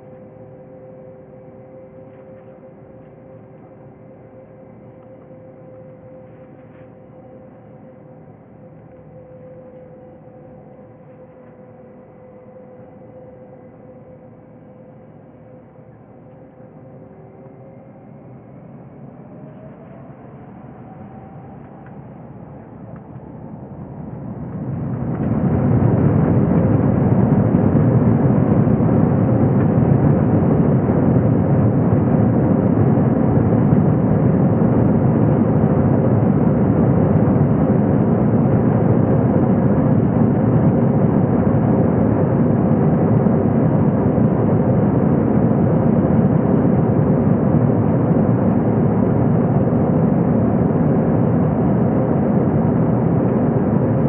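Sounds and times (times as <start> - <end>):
hum of tones: 0.0 - 54.0
jet engines roaring: 18.9 - 54.0.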